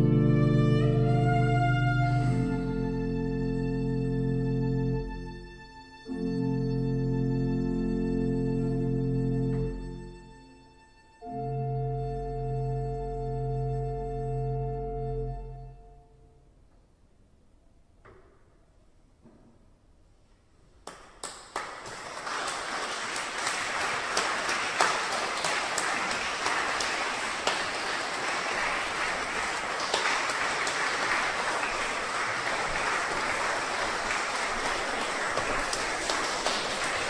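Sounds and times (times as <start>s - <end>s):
audience applause: 21.2s - 37.0s.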